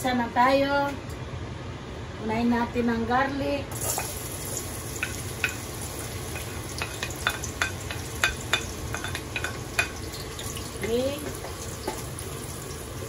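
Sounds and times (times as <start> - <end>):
garlic sizzling in oil: 3.7 - 13.0.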